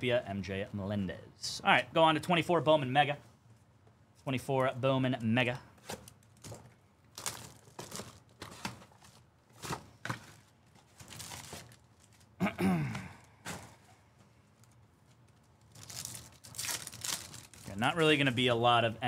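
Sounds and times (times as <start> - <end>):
packaging clicks and rustling: 5.8 - 12.3, 14.6 - 17.8.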